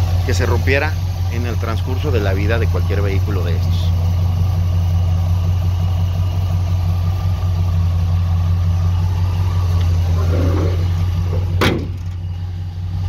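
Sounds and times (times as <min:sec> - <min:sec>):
truck engine idling: 0:00.0 - 0:13.0
hood shutting knock: 0:09.7 - 0:12.3.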